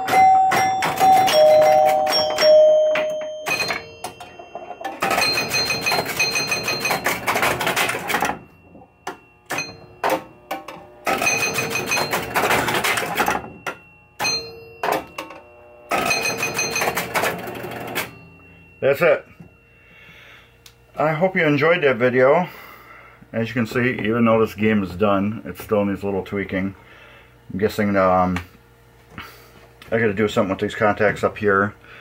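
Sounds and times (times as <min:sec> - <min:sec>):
pinball machine clicking: 0:00.0 - 0:18.3
faint ringing tones: 0:00.0 - 0:28.2.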